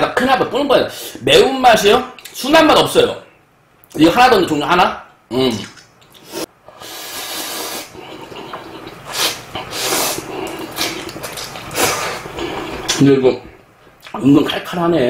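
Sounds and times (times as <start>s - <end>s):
quiet eating noise: 5.3s - 14.2s
person slurping noodles: 5.4s - 13.0s.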